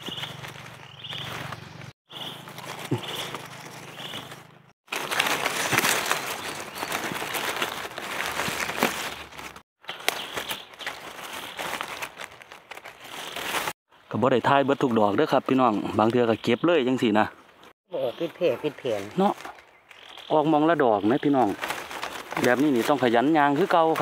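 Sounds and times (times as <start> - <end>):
dry leaves crackling and rustling: 0.0 - 13.8, 18.8 - 24.0.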